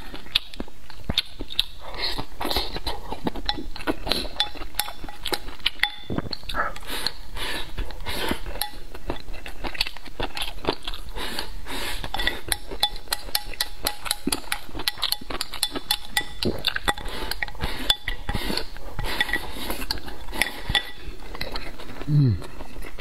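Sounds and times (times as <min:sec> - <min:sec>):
slurping and chewing food: 0:00.0 - 0:23.0
chopsticks clicking against bowl: 0:12.1 - 0:21.0.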